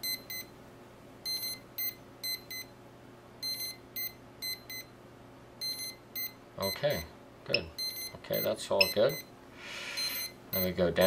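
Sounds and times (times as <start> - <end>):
motors beeping high-pitched: 10.0 - 10.8.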